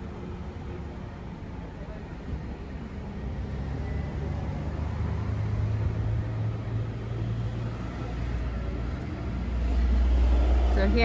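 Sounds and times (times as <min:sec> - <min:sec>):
street noise: 0:00.0 - 0:11.0.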